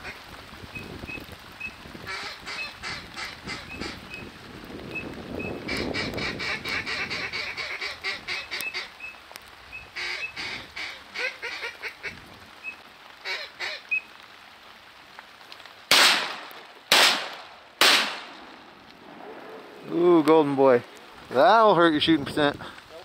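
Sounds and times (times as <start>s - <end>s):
ducks quacking: 2.1s - 4.2s, 5.6s - 9.0s, 10.0s - 12.2s
shotgun shots ringing out: 15.9s - 18.4s.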